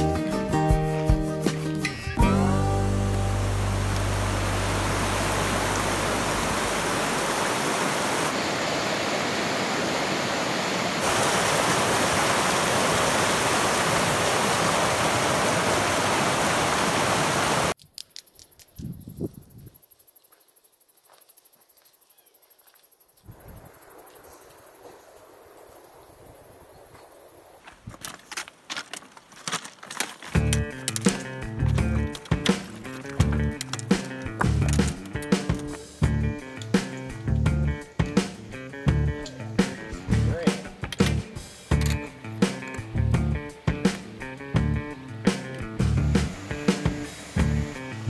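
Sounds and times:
rushing creek water: 0:02.4 - 0:17.8, 0:39.6 - 0:48.0
footsteps on loose rock: 0:27.6 - 0:35.8
trekking poles striking rock: 0:27.7 - 0:35.8.

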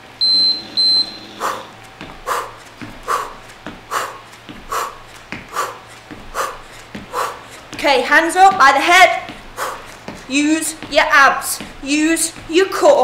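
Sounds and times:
high electronic beeps: 0:00.2 - 0:01.3
soft footfall thuds: 0:01.8 - 0:13.0.

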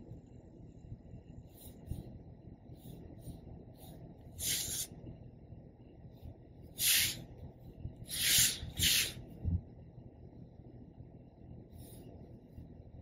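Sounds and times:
pen scratching on paper: 0:04.4 - 0:04.9, 0:08.1 - 0:09.2.

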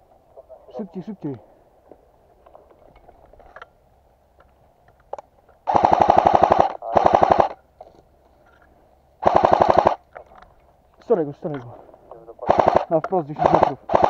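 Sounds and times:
airsoft rifle firing bursts: 0:05.7 - 0:07.6, 0:09.2 - 0:10.0, 0:12.4 - 0:14.0.

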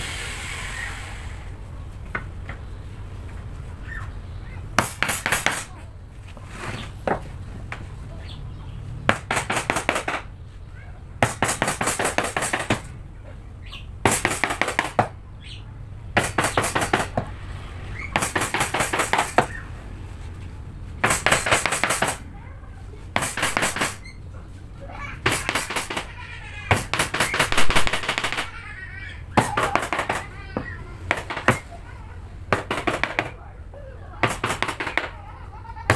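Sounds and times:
hammer striking chisel: 0:04.8 - 0:05.7, 0:09.1 - 0:10.3, 0:11.2 - 0:12.9, 0:14.0 - 0:15.2, 0:16.2 - 0:17.3, 0:18.2 - 0:19.6, 0:21.0 - 0:22.2, 0:23.2 - 0:24.1, 0:25.2 - 0:26.1, 0:26.7 - 0:28.5, 0:29.4 - 0:31.7, 0:32.5 - 0:33.4, 0:34.2 - 0:35.2.

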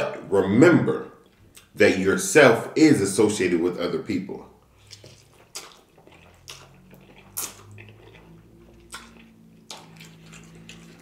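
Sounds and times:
wet mouth chewing noises: 0:01.2 - 0:01.8, 0:04.6 - 0:11.0
noodles slurped: 0:04.6 - 0:11.0.

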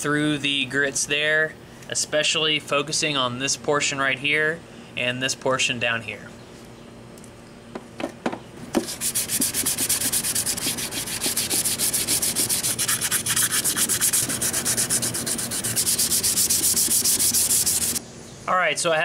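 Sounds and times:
sandpaper scraping on plastic: 0:08.8 - 0:18.0.

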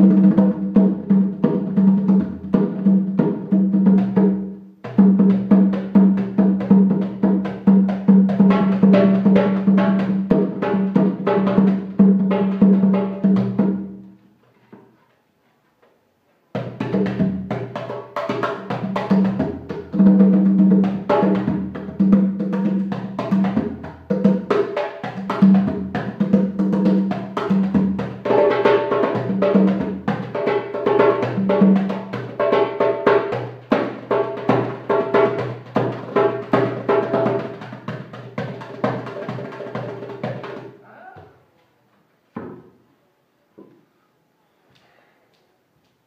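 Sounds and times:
hand drumming slaps and tones: 0:16.5 - 0:40.8.

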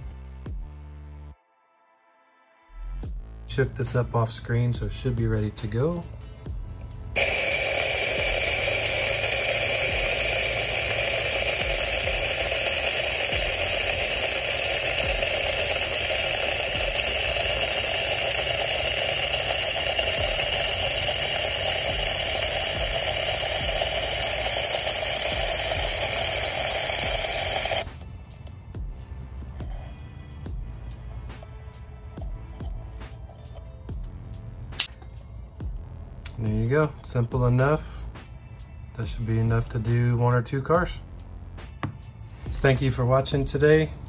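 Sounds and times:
aerosol can spraying: 0:07.2 - 0:34.1.

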